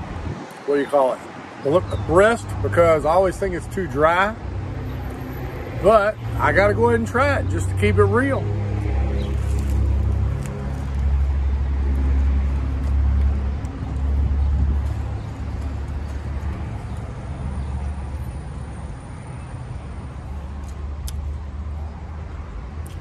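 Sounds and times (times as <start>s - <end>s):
vehicle engine rumbling: 1.6s - 23.0s.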